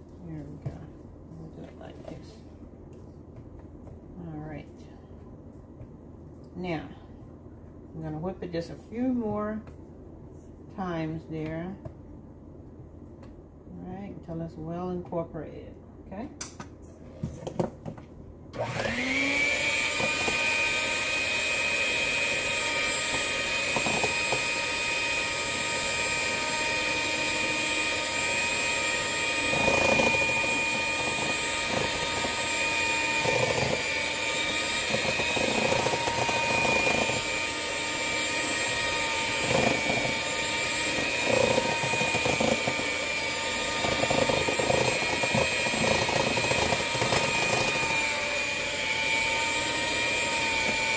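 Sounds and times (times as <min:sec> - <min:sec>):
electric hand mixer running: 0:18.6 - 0:50.9.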